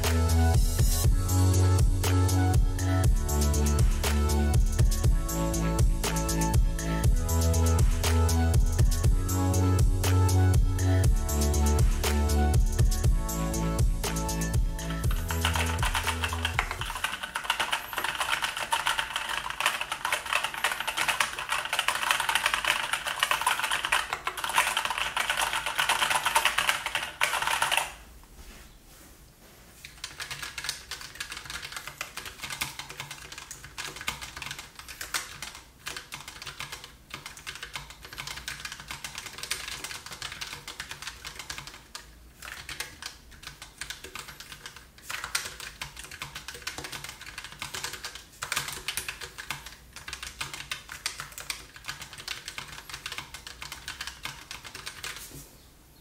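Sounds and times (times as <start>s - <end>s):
quieter keyboard keystrokes: 15.0s - 27.9s, 29.9s - 55.3s
loud mechanical keyboard clacks: 15.1s - 28.0s, 30.0s - 55.2s.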